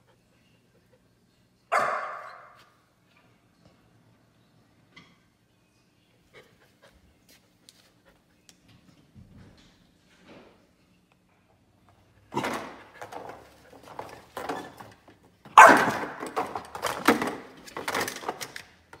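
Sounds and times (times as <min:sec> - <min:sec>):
puppy barking: 0:01.7 - 0:02.6, 0:15.6 - 0:16.2.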